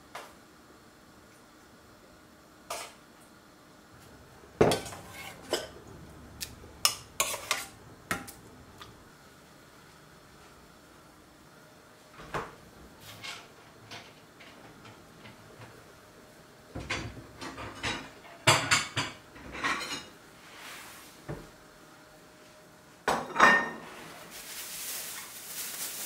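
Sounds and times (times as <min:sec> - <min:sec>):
metal and dishes clattering: 0:04.6 - 0:05.8, 0:16.8 - 0:20.2, 0:23.1 - 0:24.0.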